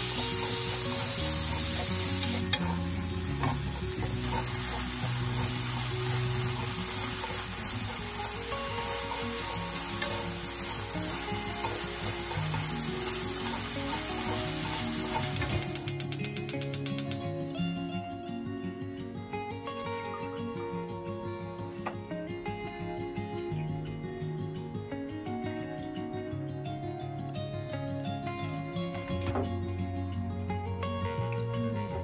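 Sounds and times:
beef sizzling in a frying pan: 0.0 - 17.9
quick run of clicks: 15.4 - 17.3.

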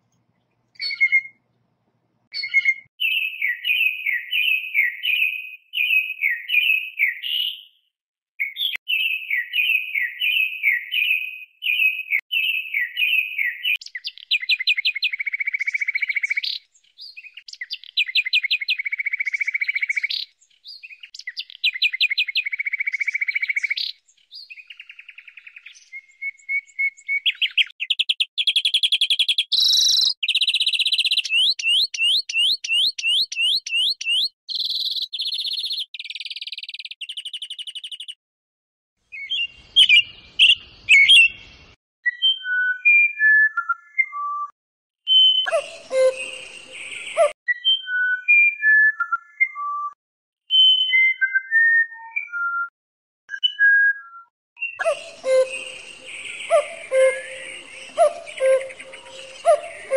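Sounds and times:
bird singing rapid phrases: 0.7 - 1.5, 2.3 - 38.2, 39.1 - 44.5, 45.1 - 52.7, 53.3 - 59.9
bird calling: 0.8 - 1.4, 2.4 - 7.6, 39.1 - 41.5, 45.1 - 47.4, 54.6 - 59.9
bird trills and wheezy notes: 45.4 - 47.4, 54.6 - 59.9.

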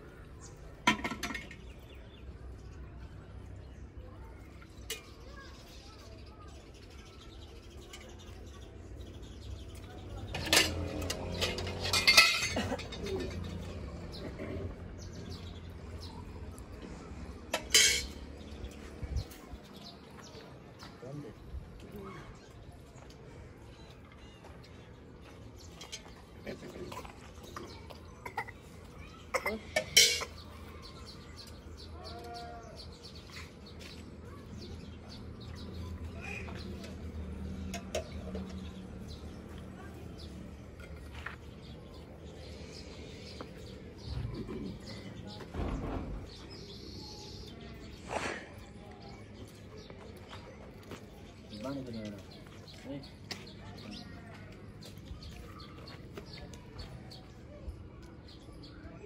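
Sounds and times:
birds chirping faintly: 0.0 - 59.0
dishes clattering: 0.8 - 1.7, 10.2 - 13.6, 17.5 - 18.2, 29.4 - 30.4
steel dishes clinking and scraping: 10.3 - 13.6, 17.5 - 18.2, 29.8 - 30.4.

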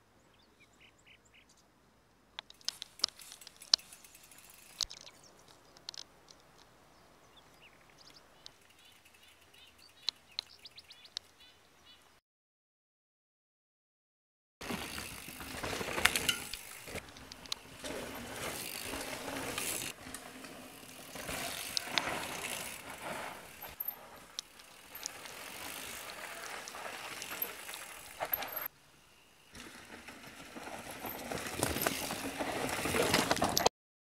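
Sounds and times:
freehub ratcheting: 2.4 - 5.0
bike rattles and knocks: 2.4 - 6.0, 14.6 - 28.7, 29.6 - 33.7
bike tyres rolling over dirt: 2.4 - 11.5, 14.6 - 33.7.

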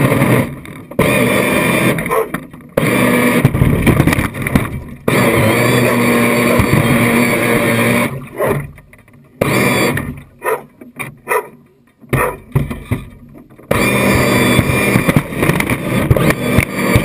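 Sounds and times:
model boat motor running: 9.4 - 10.3, 13.7 - 17.0.

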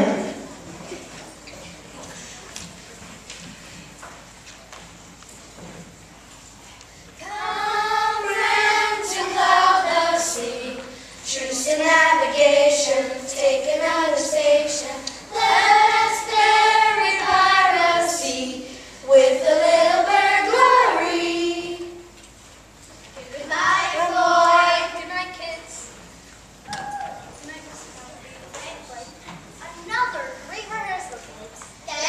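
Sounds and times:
children singing in chorus: 7.2 - 22.0.

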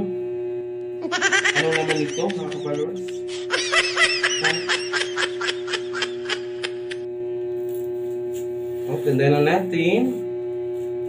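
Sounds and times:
high-pitched giggle: 1.0 - 7.0.

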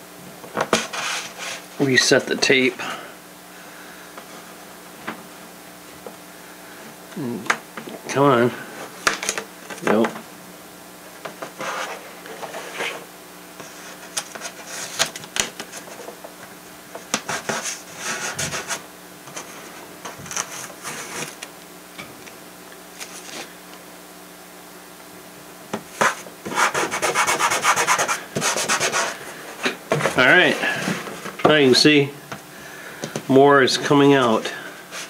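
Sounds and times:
masking tape rubbing and peeling: 26.0 - 29.2.

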